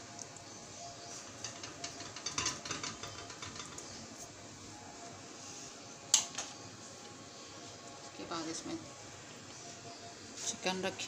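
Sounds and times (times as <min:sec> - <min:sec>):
metal spoon scraping: 0:01.2 - 0:04.0.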